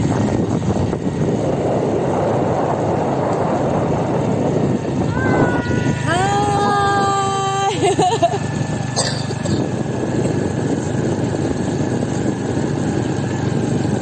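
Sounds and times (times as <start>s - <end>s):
scooter engines droning: 0.0s - 14.0s
wind rush: 0.0s - 14.0s
person shouting: 5.0s - 7.8s.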